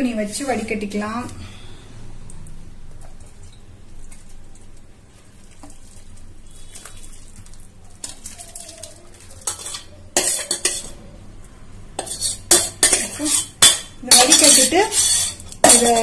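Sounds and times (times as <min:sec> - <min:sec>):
metal scraping against pan: 0:08.0 - 0:11.0, 0:12.0 - 0:16.0.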